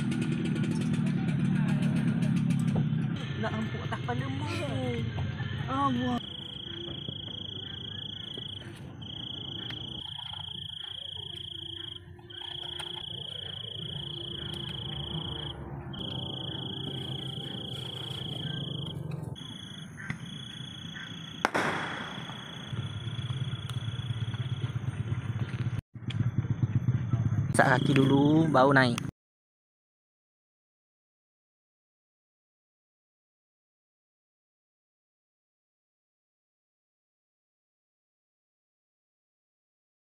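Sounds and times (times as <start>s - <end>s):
cricket trilling: 5.8s - 24.7s.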